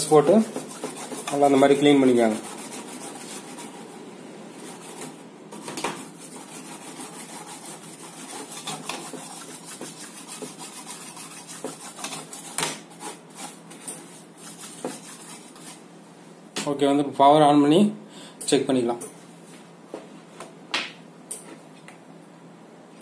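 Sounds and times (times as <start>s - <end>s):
brush scrubbing circuit board: 0.0s - 15.9s.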